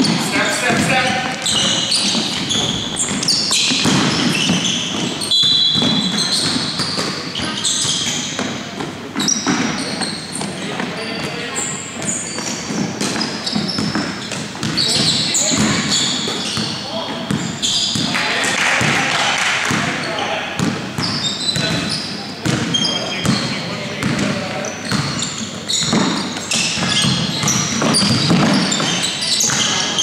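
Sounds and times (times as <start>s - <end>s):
sneaker squeaks: 0.0s - 30.0s
basketball dribbling on hardwood: 25.8s - 29.7s.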